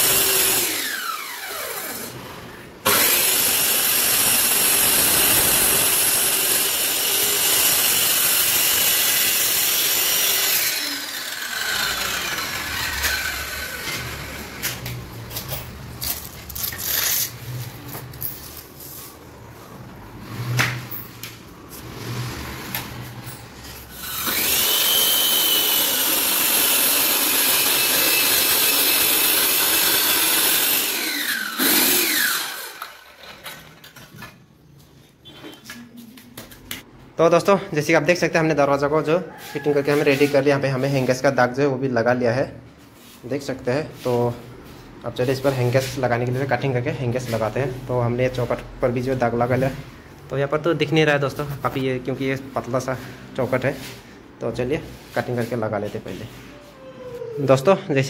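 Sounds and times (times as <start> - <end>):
circular saw cutting board: 0.0 - 2.2, 2.9 - 15.0, 23.8 - 33.3.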